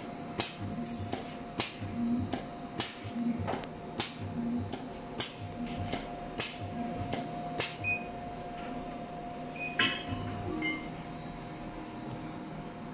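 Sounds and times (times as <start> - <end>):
machine hum: 0.0 - 12.9
hissing clicks with thumps: 0.4 - 7.8.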